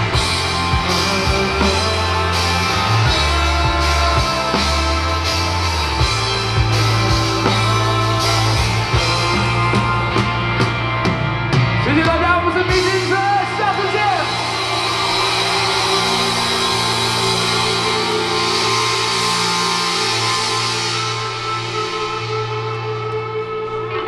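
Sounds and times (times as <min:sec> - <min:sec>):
drums and bass pounding: 0:00.0 - 0:24.0
voice singing long notes: 0:14.2 - 0:23.9.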